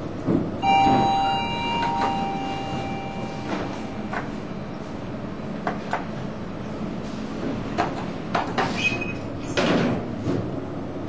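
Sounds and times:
brief high beep: 0:00.6 - 0:04.5
elevator doors knocking shut: 0:00.6 - 0:04.5
elevator doors sliding: 0:00.6 - 0:10.2.

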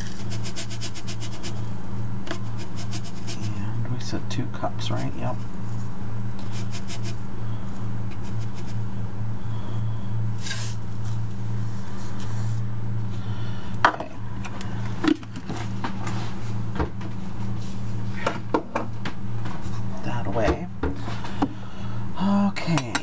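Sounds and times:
low hum: 0:00.0 - 0:23.0
cup knocking against bowl: 0:13.8 - 0:14.2.

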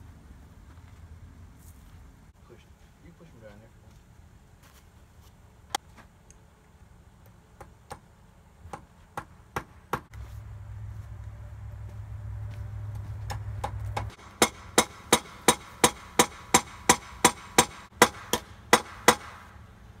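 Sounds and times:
steady low hum: 0:00.0 - 0:20.0
hammer striking wood: 0:08.7 - 0:10.1, 0:13.3 - 0:19.5.

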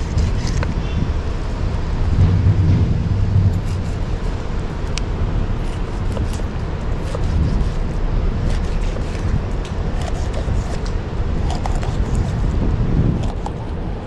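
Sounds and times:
low rumbling noise: 0:00.0 - 0:14.0.

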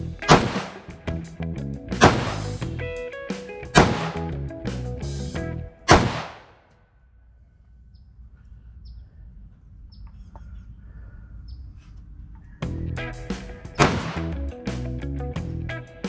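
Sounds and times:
guitar music: 0:00.0 - 0:05.9, 0:12.6 - 0:16.0
low outdoor rumble: 0:00.0 - 0:06.2, 0:07.2 - 0:16.0
rifle shot: 0:00.3 - 0:00.9, 0:02.0 - 0:02.6, 0:03.8 - 0:04.3, 0:05.9 - 0:06.6, 0:13.7 - 0:14.4
faint bird chirps: 0:07.4 - 0:13.0.

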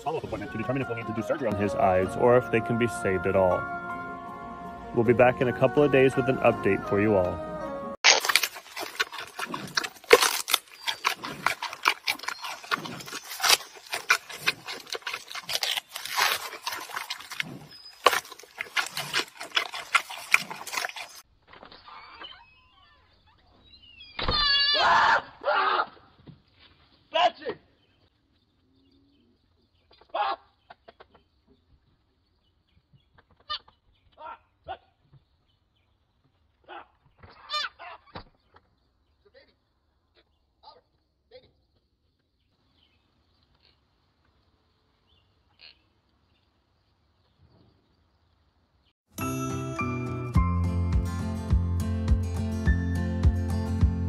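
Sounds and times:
panda chewing bamboo: 0:08.0 - 0:21.2.

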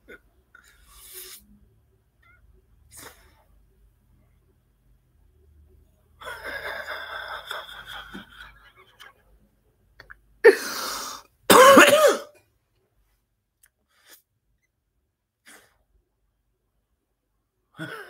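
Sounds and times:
man coughing: 0:11.5 - 0:12.4.

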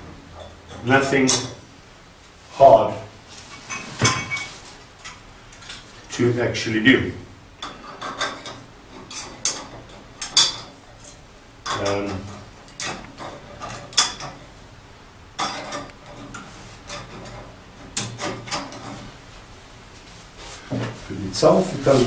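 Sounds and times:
stove parts clicking and knocking: 0:07.6 - 0:14.5, 0:15.4 - 0:19.1.

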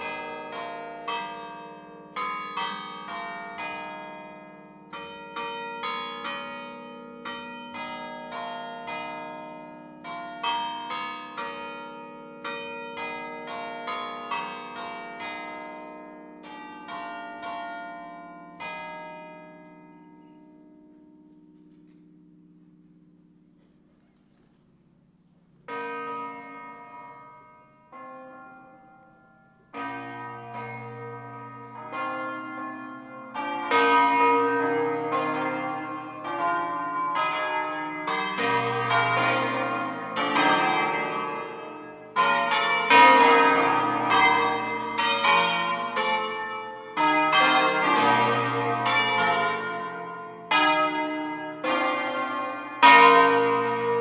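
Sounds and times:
church bells ringing: 0:00.0 - 0:54.0.

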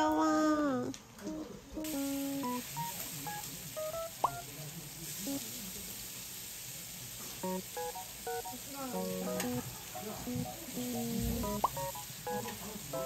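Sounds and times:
playful background music: 0:07.5 - 0:09.6, 0:10.3 - 0:13.0.

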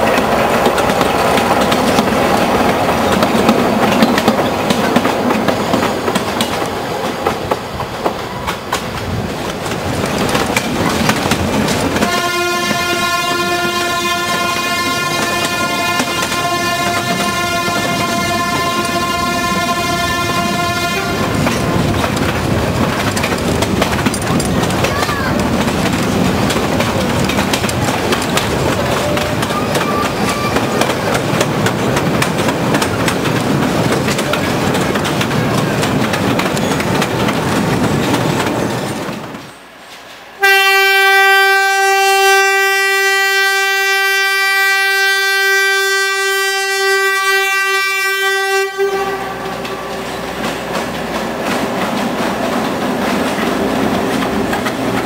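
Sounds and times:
train wheels clattering on rails: 0:00.0 - 0:40.5, 0:48.5 - 0:55.0
train horn blast: 0:12.0 - 0:21.6, 0:40.4 - 0:50.2
locomotive engine running: 0:15.1 - 0:39.3.

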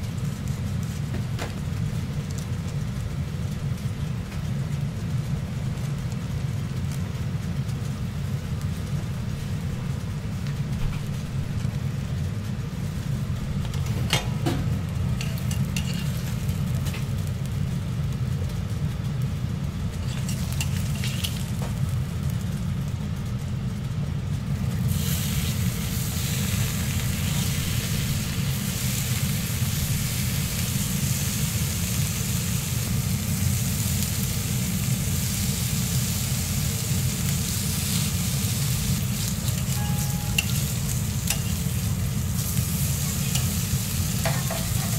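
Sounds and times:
bacon sizzling on griddle: 0:00.0 - 0:44.9
low hum: 0:01.7 - 0:44.9.

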